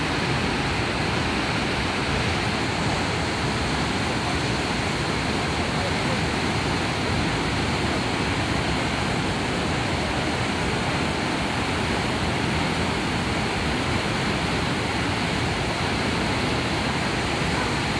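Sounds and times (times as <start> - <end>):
waterfall rushing: 0.0 - 17.9.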